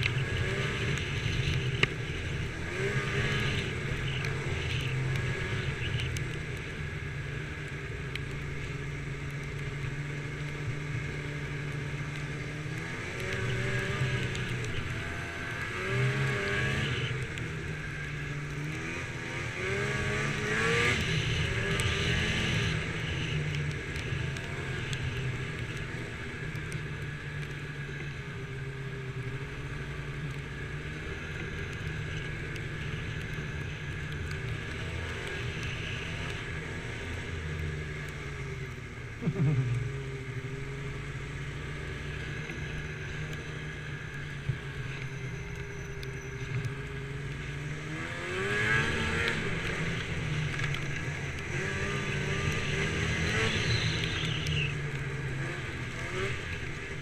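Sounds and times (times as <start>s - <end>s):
snowmobile engine revving: 0.0s - 6.2s, 12.4s - 17.3s, 17.9s - 26.2s, 39.2s - 42.8s, 47.7s - 57.0s.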